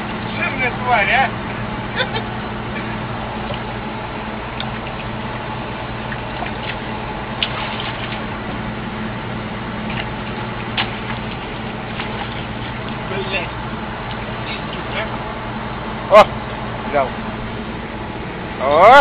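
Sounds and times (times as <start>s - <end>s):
excavator engine humming: 0.0s - 19.0s
water splashing off excavator bucket: 2.9s - 8.7s, 9.7s - 15.2s.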